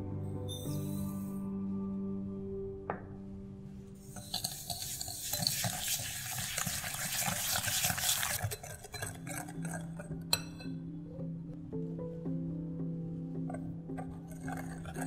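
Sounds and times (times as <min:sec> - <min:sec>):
sharp clink: 0:00.5 - 0:01.2
wire whisk scraping glass bowl: 0:04.0 - 0:10.6, 0:13.5 - 0:15.0.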